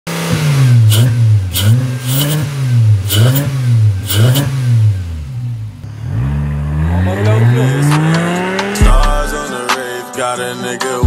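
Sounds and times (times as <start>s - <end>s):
car engine revving: 0.1s - 9.8s.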